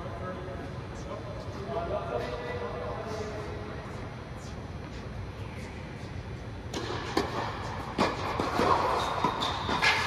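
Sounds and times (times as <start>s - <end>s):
shoe squeak: 8.8s - 10.0s.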